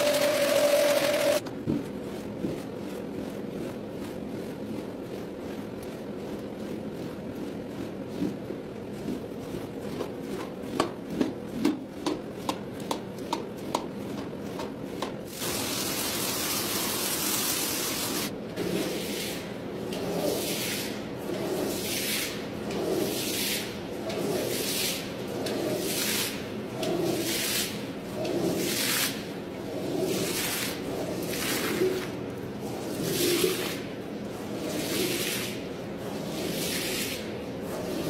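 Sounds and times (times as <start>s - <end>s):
stiff brush scrubbing rug: 20.0s - 38.0s.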